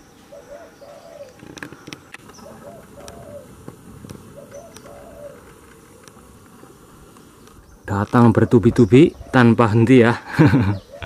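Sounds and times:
dove cooing: 0:00.0 - 0:07.5, 0:10.4 - 0:11.0.

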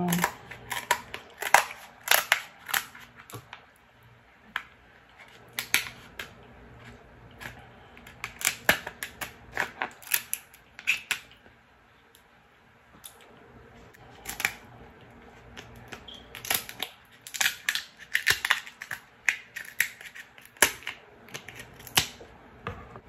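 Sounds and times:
scissors cracking crab shell: 0:00.0 - 0:03.5, 0:07.4 - 0:11.4, 0:14.2 - 0:14.7, 0:15.6 - 0:22.2.

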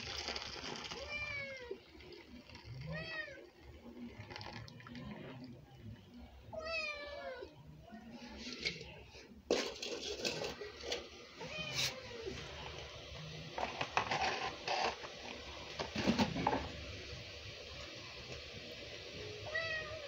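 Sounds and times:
cat meowing: 0:06.5 - 0:07.5, 0:11.4 - 0:12.3, 0:19.4 - 0:20.0
spoon scraping in plastic bowl: 0:09.5 - 0:12.0, 0:13.6 - 0:15.3.

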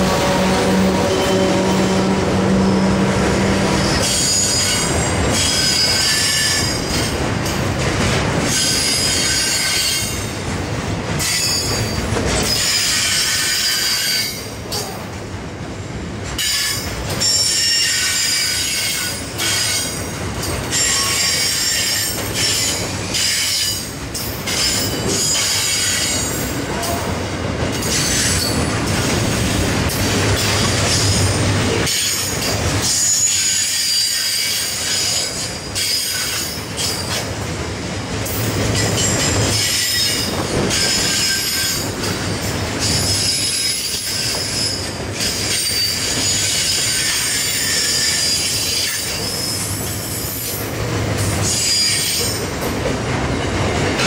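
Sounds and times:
train wheels squealing on rails: 0:00.0 - 0:10.5, 0:11.1 - 0:15.2, 0:15.8 - 0:37.5, 0:38.2 - 0:52.9
wheel-on-rail rumble and clatter: 0:00.0 - 0:13.1, 0:23.8 - 0:33.6.

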